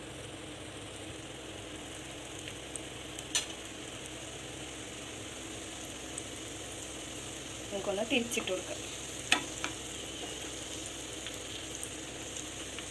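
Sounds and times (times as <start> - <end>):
oil sizzling and bubbling: 0.0 - 12.9
sharp tap in pan: 9.3 - 10.4.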